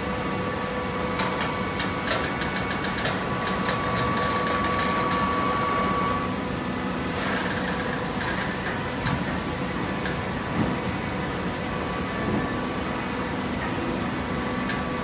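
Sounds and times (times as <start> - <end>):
machine whine: 0.0 - 15.0.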